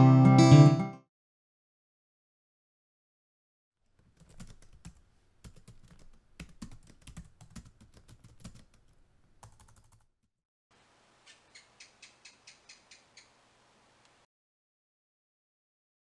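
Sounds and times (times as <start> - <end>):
typing on computer keyboard: 4.0 - 10.1.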